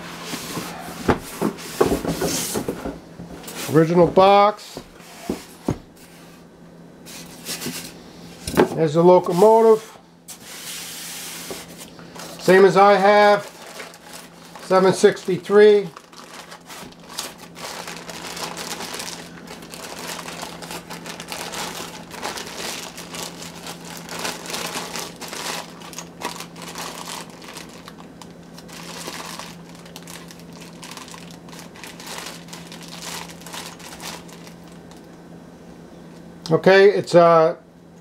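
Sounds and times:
faint steady hum: 0.0s - 38.0s
plastic bag crinkling: 11.6s - 35.2s.

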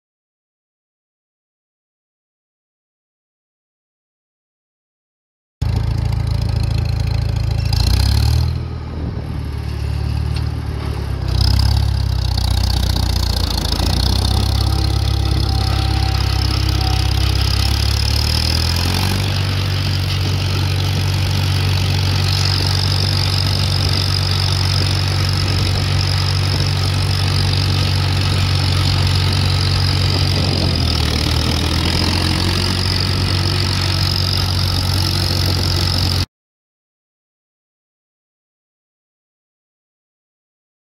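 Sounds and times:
tractor engine under load: 5.6s - 36.3s.

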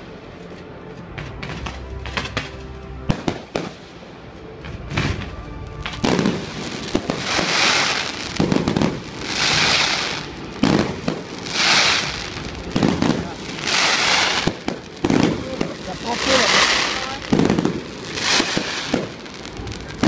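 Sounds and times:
crackling hiss of fireworks: 0.0s - 20.0s
firework bangs: 4.6s - 20.0s.

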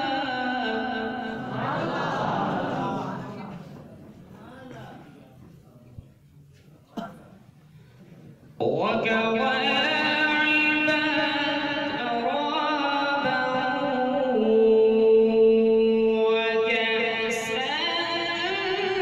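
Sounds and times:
man chanting melodic recitation: 8.6s - 19.0s.

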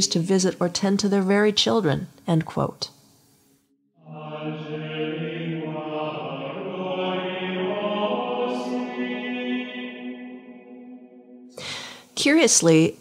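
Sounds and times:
slow music with long low notes: 4.0s - 11.7s.

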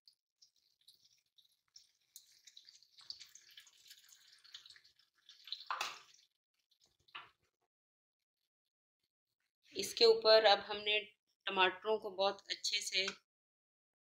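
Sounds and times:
liquid pouring into hot pan: 0.4s - 7.4s
liquid splashing: 0.4s - 7.4s.

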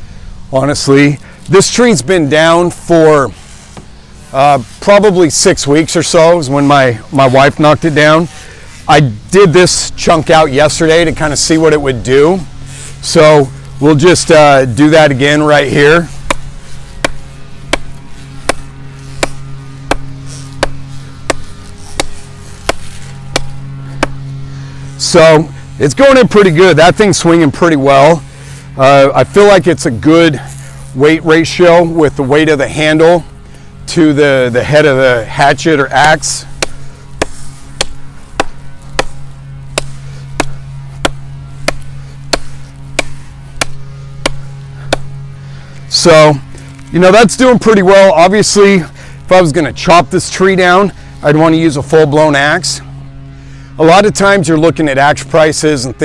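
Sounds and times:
steady low hum: 0.0s - 56.0s
hatchet chopping wood: 16.2s - 24.2s, 36.6s - 45.1s.

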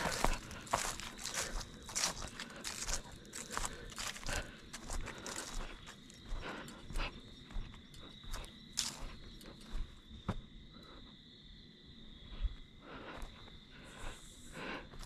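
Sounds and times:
footsteps on dry leaves: 0.0s - 7.0s, 8.2s - 9.1s.

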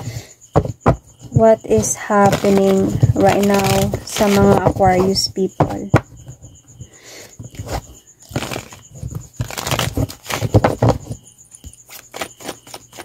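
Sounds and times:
cards being shuffled: 2.2s - 4.6s.

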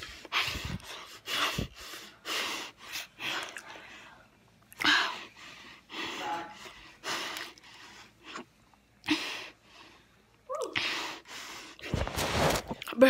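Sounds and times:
boy breathing and gasping: 0.0s - 4.2s.

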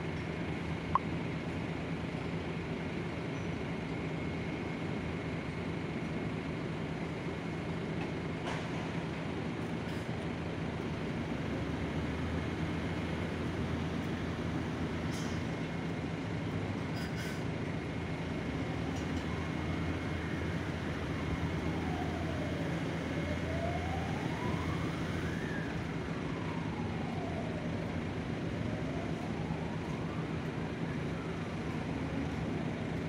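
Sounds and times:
faint wailing siren: 17.8s - 33.0s.

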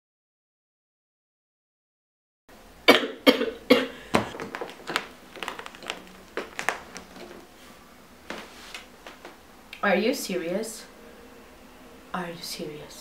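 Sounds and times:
woman coughing: 2.9s - 4.2s.

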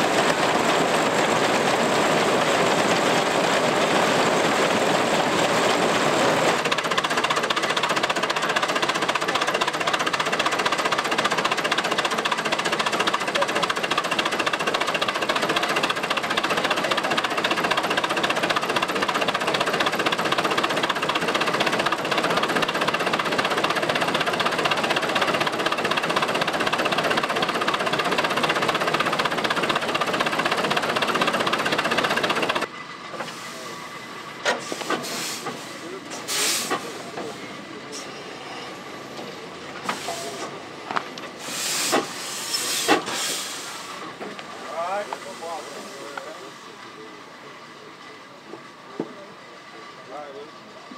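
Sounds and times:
threshing machine rattling: 0.0s - 33.3s.

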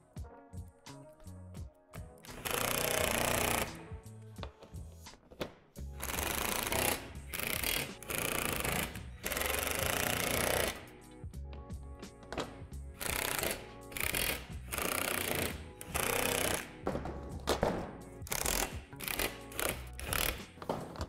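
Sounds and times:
impact driver hammering screws: 2.3s - 3.8s, 6.0s - 10.9s, 12.4s - 21.0s.

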